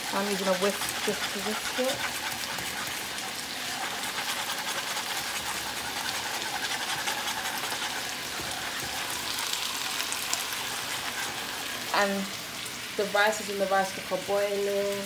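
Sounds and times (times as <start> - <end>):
whisk scraping a saucepan: 0.0 - 12.0.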